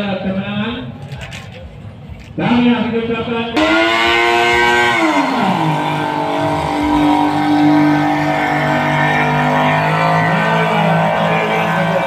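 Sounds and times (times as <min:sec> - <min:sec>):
racing boat engine passing: 0:03.6 - 0:12.0.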